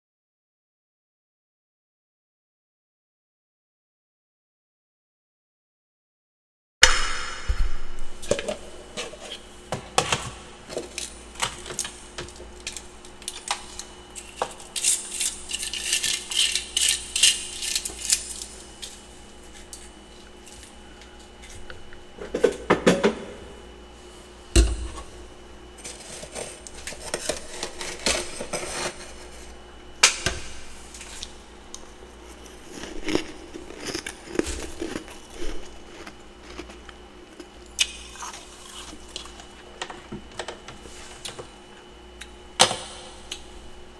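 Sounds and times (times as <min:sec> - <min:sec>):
frost being crunched and chewed: 0:10.8 - 0:22.1, 0:30.9 - 0:39.7.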